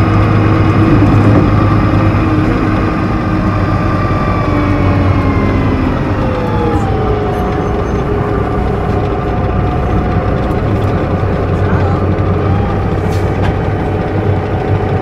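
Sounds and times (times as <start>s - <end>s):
bus engine low drone: 0.0s - 15.0s
gearbox whine falling in pitch: 0.0s - 15.0s.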